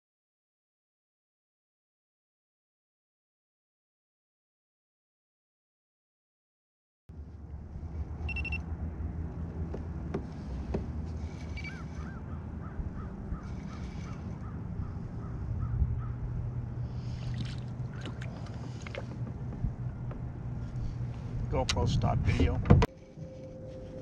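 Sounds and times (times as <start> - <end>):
low steady rumble: 7.1 - 24.0
fishing reel squeaking: 11.3 - 11.9.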